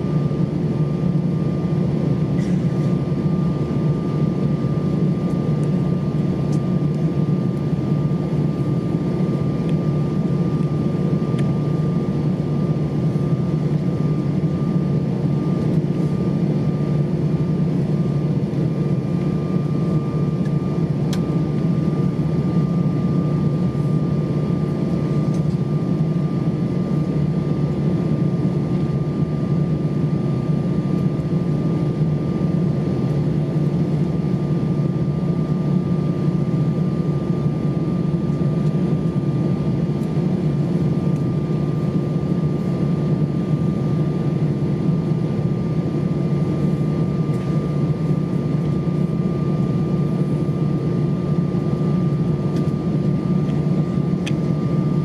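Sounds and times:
airliner cabin drone: 0.0 - 55.0
faint steady whine: 0.0 - 55.0.

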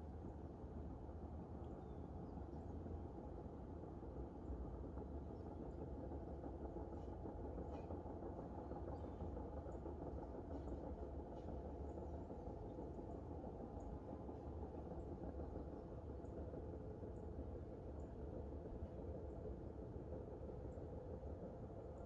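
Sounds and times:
low outdoor rumble: 0.0 - 22.0.

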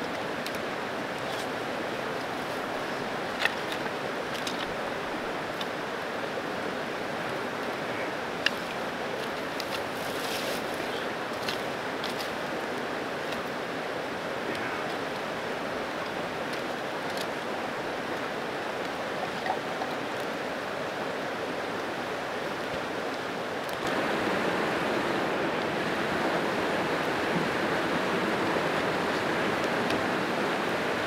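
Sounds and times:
creek water rushing: 0.0 - 31.0.

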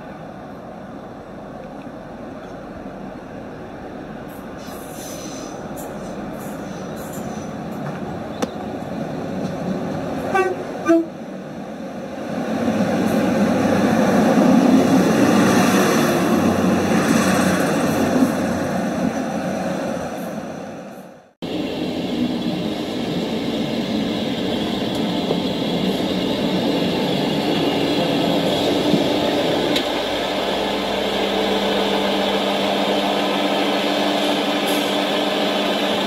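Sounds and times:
model train running: 21.4 - 36.0.

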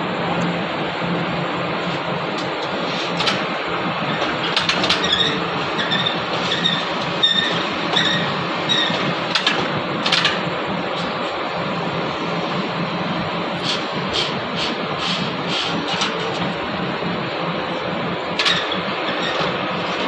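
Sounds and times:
electric hoist motors humming: 0.0 - 20.0
high squeak: 5.0 - 9.0.

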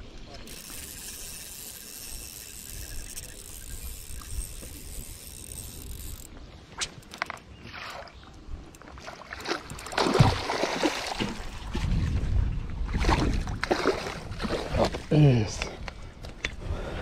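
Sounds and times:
fishing reel winding: 0.4 - 6.3
fish splashing in water: 9.0 - 11.6.

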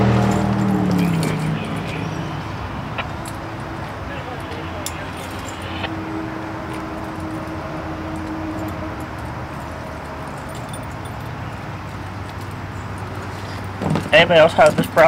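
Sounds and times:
steady low rumble: 0.0 - 11.1
keys jingling: 0.1 - 5.9, 6.6 - 15.0
safety chains clinking: 0.2 - 15.0.

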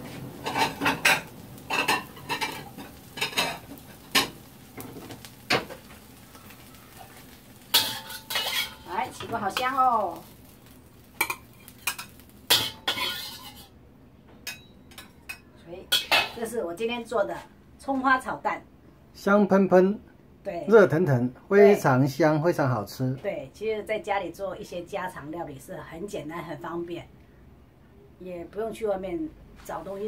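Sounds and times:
metal spatula scraping wok: 0.0 - 4.4, 6.9 - 9.8, 11.2 - 13.7
faint sizzling: 0.0 - 20.0.

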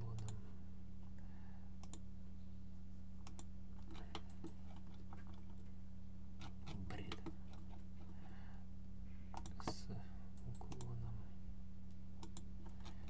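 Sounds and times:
low hum: 0.0 - 13.0
mouse and keyboard clicks: 12.2 - 13.0.

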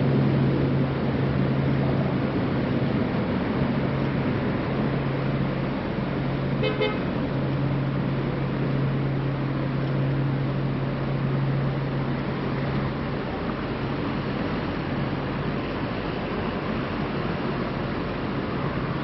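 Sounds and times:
road traffic noise: 0.0 - 19.0.

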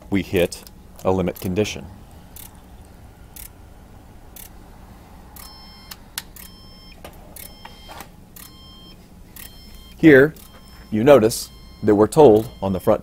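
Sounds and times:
high electronic beep: 5.4 - 13.0.

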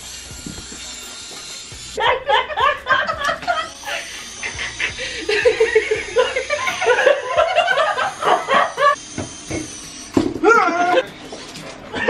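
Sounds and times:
people laughing: 2.0 - 9.0
woman laughing in bursts: 2.0 - 9.0.

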